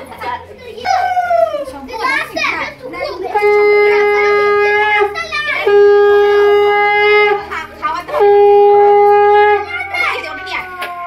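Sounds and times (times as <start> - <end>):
conch shell blasts: 3.3 - 7.5, 8.1 - 10.0.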